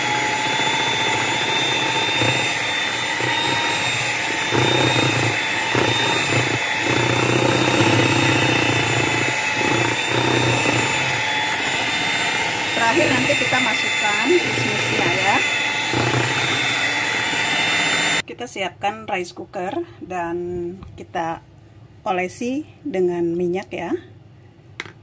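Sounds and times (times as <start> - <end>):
beaters churning batter: 0.0 - 18.2
electric hand mixer whining: 0.0 - 18.2.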